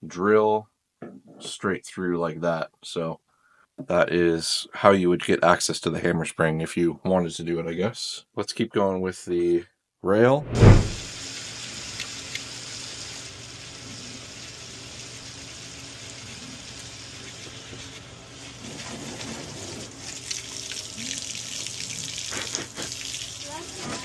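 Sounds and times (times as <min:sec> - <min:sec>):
running water rushing: 0:10.5 - 0:11.2.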